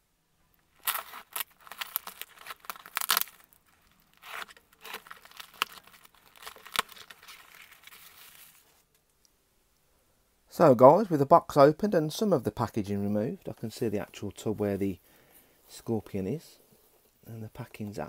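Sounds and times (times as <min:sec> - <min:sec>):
tape wrap crinkling: 0:00.6 - 0:08.8
packing tape ripping: 0:00.8 - 0:08.6.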